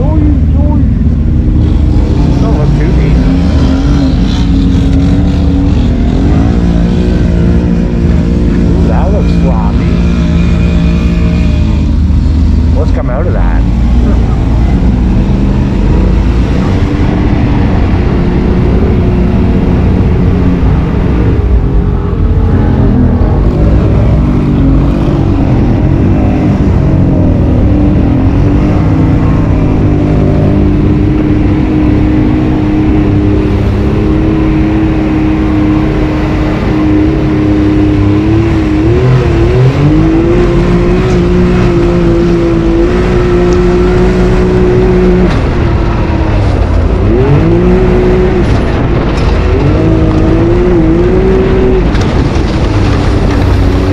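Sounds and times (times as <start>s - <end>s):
utility vehicle engine running: 0.0s - 53.9s
water and mud splashing: 51.3s - 53.9s.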